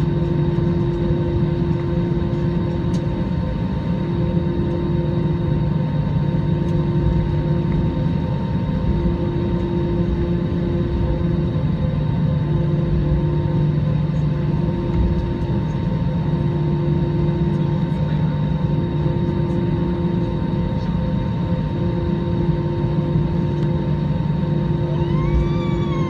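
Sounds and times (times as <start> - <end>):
airliner engine hum: 0.0 - 26.0
rising and falling whine: 22.0 - 26.0.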